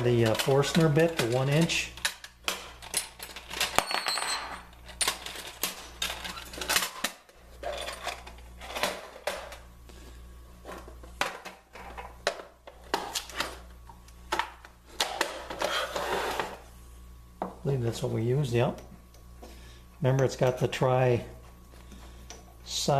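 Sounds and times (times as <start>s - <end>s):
metal tools clinking: 2.8s - 6.8s.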